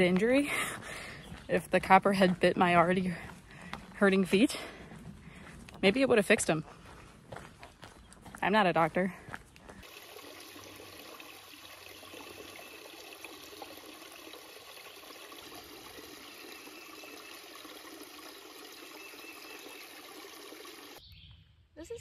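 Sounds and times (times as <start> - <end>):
stream trickling over stones: 9.7 - 21.0.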